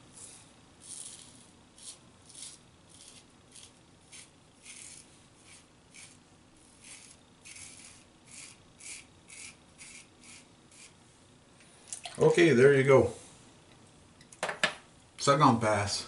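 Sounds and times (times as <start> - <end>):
razor scraping stubble: 0.2 - 11.0.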